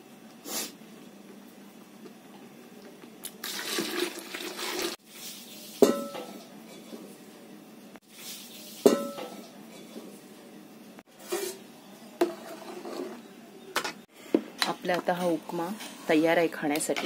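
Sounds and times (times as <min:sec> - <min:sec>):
water splashing into metal pot: 0:03.4 - 0:05.0.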